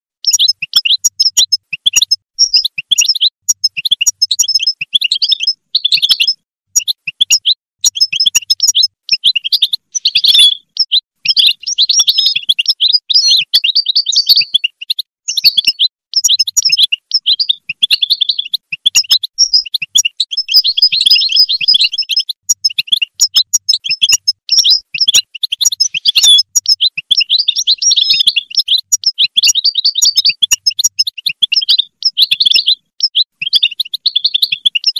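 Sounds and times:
goldfinch twittering song: 0.2s - 34.9s.

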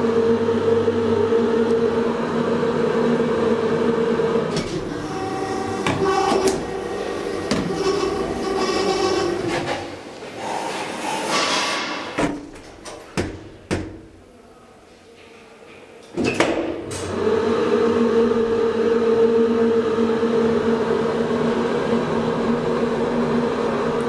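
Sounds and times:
hydraulic elevator humming: 0.0s - 10.6s
elevator doors shutting: 0.0s - 13.2s.

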